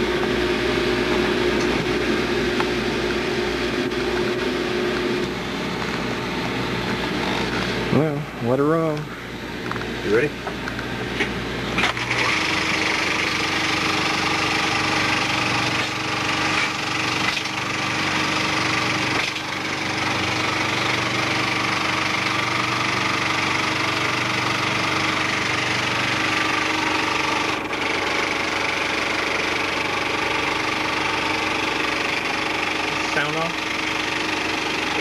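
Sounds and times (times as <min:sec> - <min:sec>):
film projector clattering: 0:11.8 - 0:35.0.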